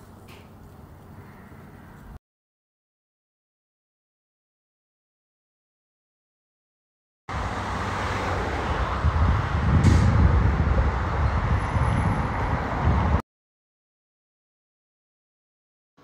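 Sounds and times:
bus passing: 0:00.0 - 0:02.2, 0:07.3 - 0:13.2
road traffic going by: 0:00.0 - 0:02.2, 0:07.3 - 0:13.2.

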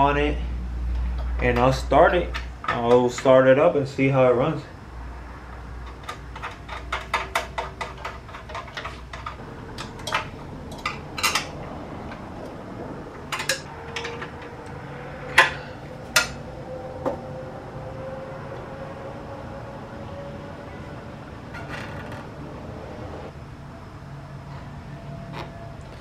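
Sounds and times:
metallic clicking on engine parts: 0:05.5 - 0:16.4.

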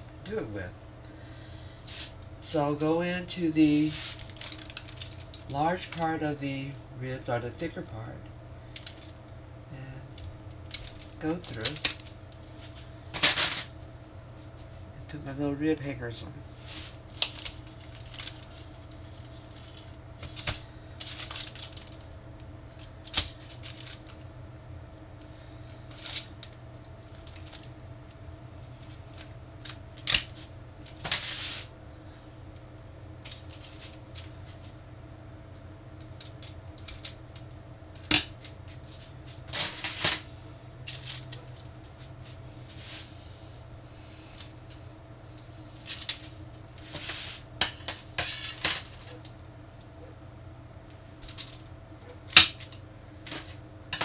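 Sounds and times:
foil rustling: 0:03.7 - 0:06.0, 0:16.5 - 0:22.1, 0:22.7 - 0:24.3, 0:25.3 - 0:27.8, 0:28.8 - 0:32.2.

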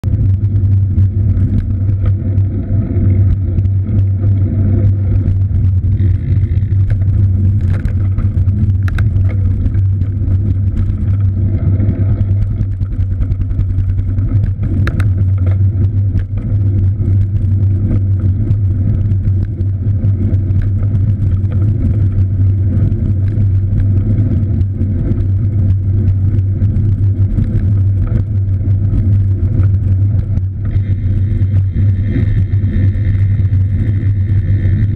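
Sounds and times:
bike rolling on road rumble: 0:00.0 - 0:34.9.

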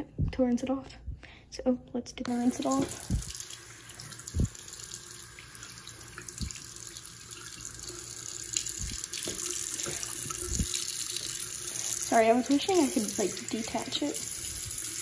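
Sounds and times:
soft low thumps: 0:00.0 - 0:01.4, 0:02.9 - 0:03.4, 0:04.3 - 0:04.6, 0:08.8 - 0:09.1, 0:10.0 - 0:10.8
tap water splashing: 0:02.3 - 0:11.4.

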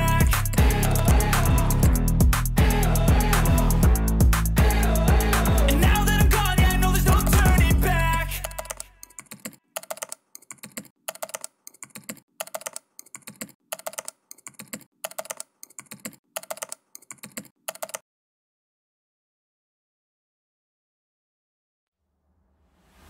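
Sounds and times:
background music: 0:00.0 - 0:09.2
computer keyboard typing: 0:06.4 - 0:18.0.

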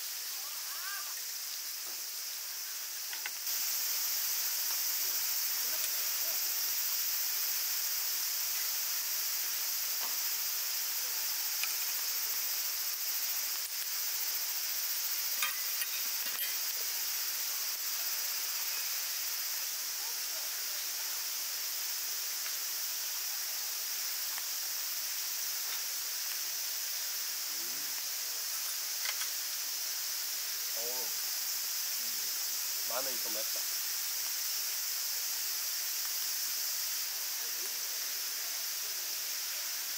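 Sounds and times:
insects chorus: 0:00.0 - 0:39.9.

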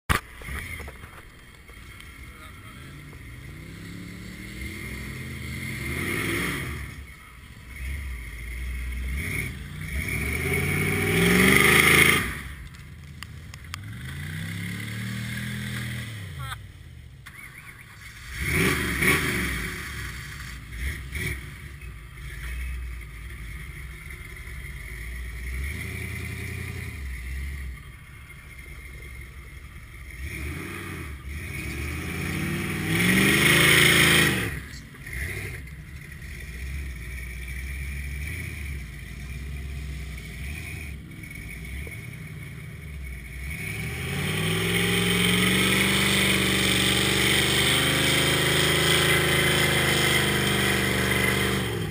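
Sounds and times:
tires spinning in mud: 0:00.1 - 0:16.5, 0:17.2 - 0:51.9
truck engine revving: 0:00.1 - 0:51.9.

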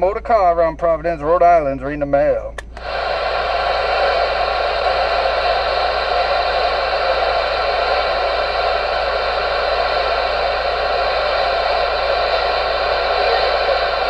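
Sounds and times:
radio static hiss: 0:02.8 - 0:14.0.

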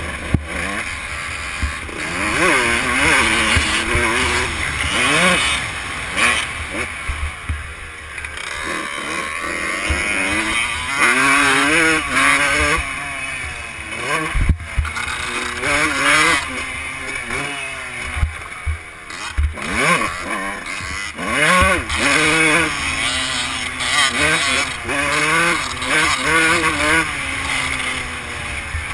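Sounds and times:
dirt bike engine revving: 0:00.0 - 0:28.9.

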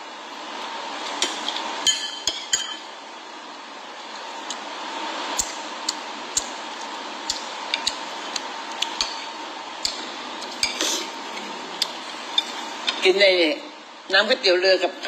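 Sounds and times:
steady background hiss: 0:00.0 - 0:15.0
metal spoon clinking on ceramic bowl: 0:01.8 - 0:02.8.

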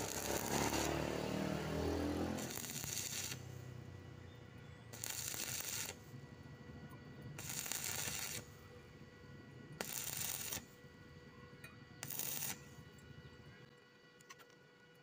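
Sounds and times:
welding arc crackling and hissing: 0:00.0 - 0:04.2, 0:04.8 - 0:06.2, 0:07.3 - 0:08.6, 0:09.8 - 0:10.8, 0:12.0 - 0:12.8.

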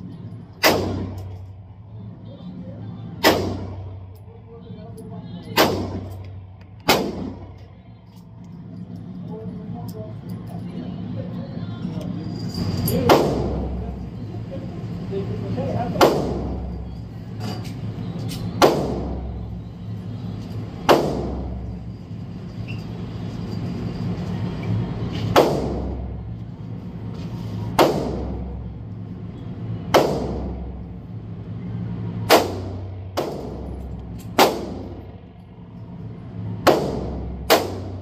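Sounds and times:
steady low hum: 0:00.0 - 0:38.0
echoing gunshots: 0:00.6 - 0:01.2, 0:06.9 - 0:07.5.

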